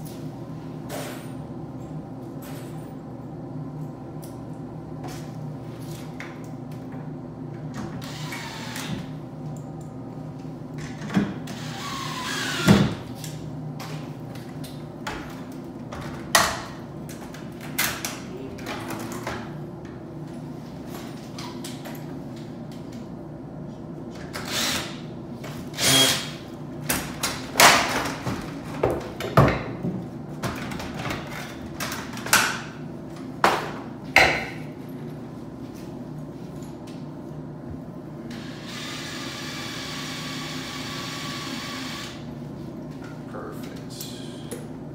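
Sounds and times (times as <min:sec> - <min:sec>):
steady low hum: 0:00.0 - 0:44.9
cordless drill driving screws: 0:08.0 - 0:08.9, 0:11.5 - 0:12.8, 0:25.8 - 0:26.3, 0:38.3 - 0:42.2.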